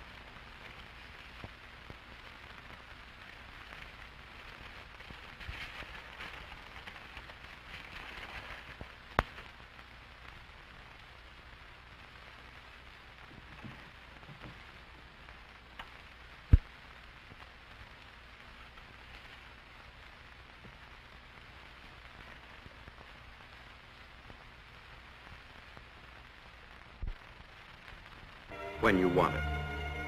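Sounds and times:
old recording hiss and crackle: 0:00.0 - 0:30.0
sharp record pop: 0:26.9 - 0:27.3.

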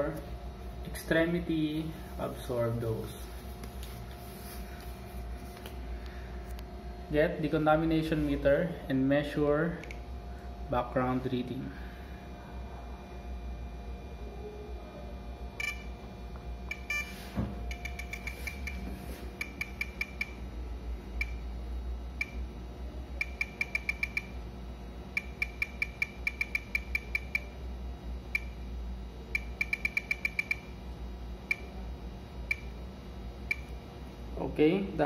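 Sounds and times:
low steady hum: 0:00.0 - 0:35.0
radiation meter clicking: 0:09.8 - 0:10.0, 0:16.6 - 0:17.1, 0:17.7 - 0:18.8, 0:19.4 - 0:20.4, 0:21.2 - 0:21.5, 0:22.2 - 0:22.4, 0:23.2 - 0:24.4, 0:25.1 - 0:27.5, 0:28.3 - 0:28.6, 0:29.3 - 0:30.7, 0:31.5 - 0:31.7, 0:32.5 - 0:32.8, 0:33.4 - 0:33.8.

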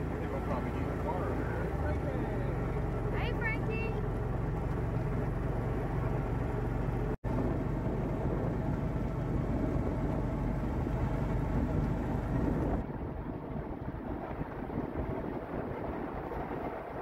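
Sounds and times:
utility vehicle engine running: 0:00.0 - 0:17.0.

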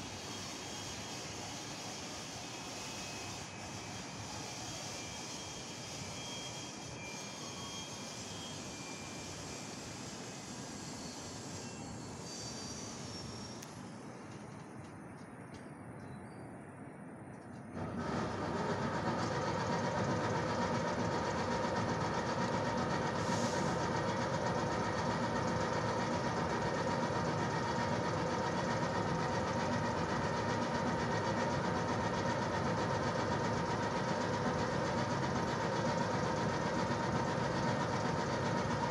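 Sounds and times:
electric locomotive humming: 0:00.0 - 0:15.6, 0:16.7 - 0:38.9
short hiss: 0:23.2 - 0:23.8.

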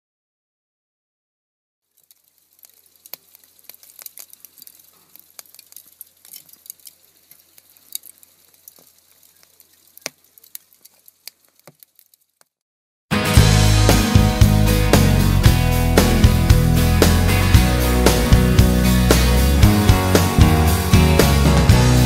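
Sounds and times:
crackling pops and snaps: 0:01.9 - 0:12.6.

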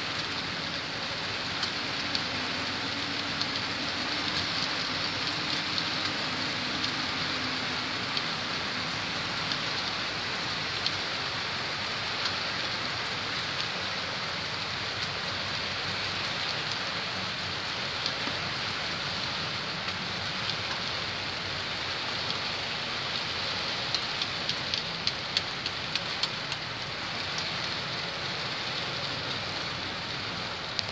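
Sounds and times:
model train wheels on rails: 0:00.0 - 0:30.9.

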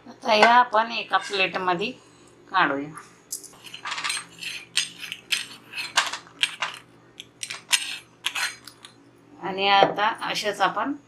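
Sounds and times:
metal cutter scraping board: 0:03.6 - 0:06.8, 0:07.4 - 0:08.6.

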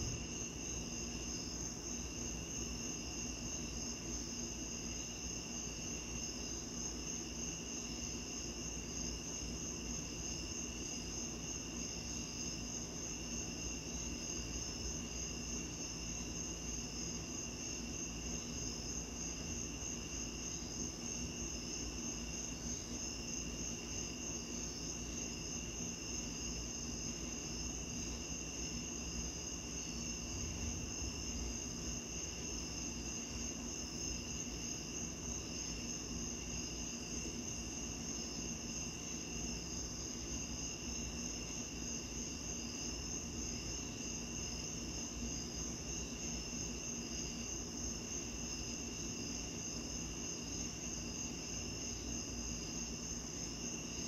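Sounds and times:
low even hiss: 0:16.1 - 0:35.5.

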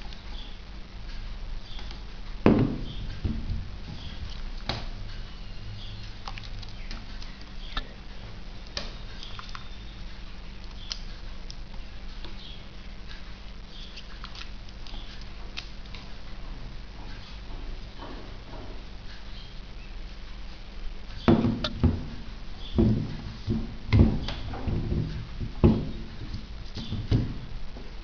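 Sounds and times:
steady low hum: 0:00.0 - 0:28.0
plastic speaker handling thumps: 0:02.5 - 0:05.0, 0:21.3 - 0:27.5.

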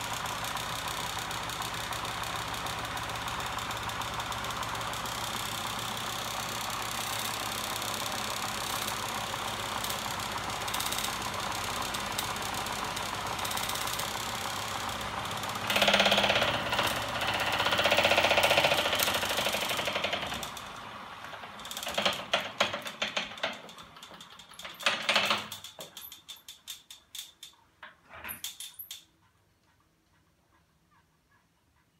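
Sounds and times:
bicycle freewheel ratchet clicking: 0:00.0 - 0:20.8, 0:21.5 - 0:27.6
machine motor whirring: 0:03.2 - 0:20.8.

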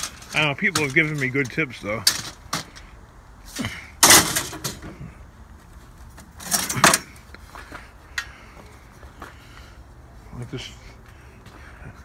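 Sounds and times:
loose scrap clattering: 0:03.6 - 0:05.0.

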